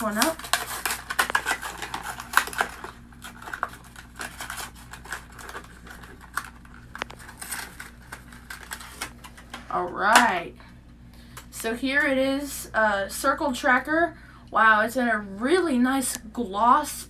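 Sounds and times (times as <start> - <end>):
plastic packaging being opened: 0.0 - 10.2.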